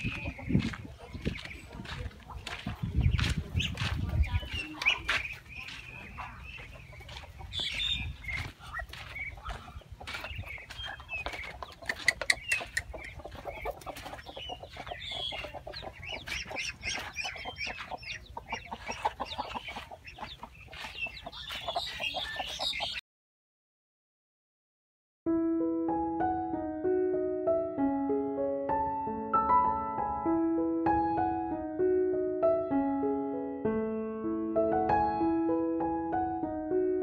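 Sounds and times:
chickens clucking: 0.0s - 23.0s
chicks peeping: 0.0s - 23.0s.

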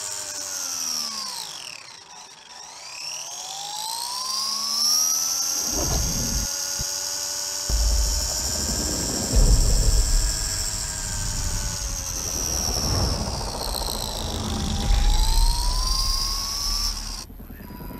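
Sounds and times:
remote-control car motor whining: 0.0s - 7.7s
low rumble: 5.6s - 6.5s, 7.7s - 17.9s.

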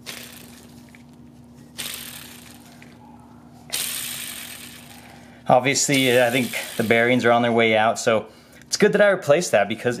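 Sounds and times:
pulley spinning with rough whir: 0.0s - 7.7s.

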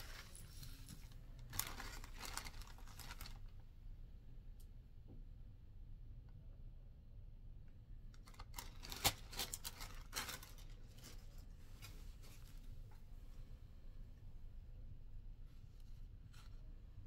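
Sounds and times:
plastic bag crinkling: 0.0s - 3.5s, 8.3s - 11.3s.

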